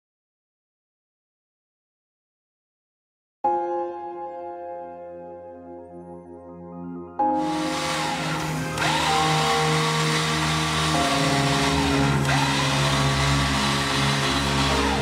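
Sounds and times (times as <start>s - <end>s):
music playing: 3.5s - 15.0s
electric winch running: 7.4s - 15.0s.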